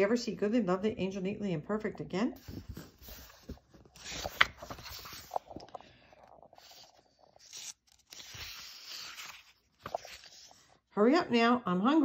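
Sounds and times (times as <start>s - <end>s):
paper page rustling: 2.4s - 10.8s.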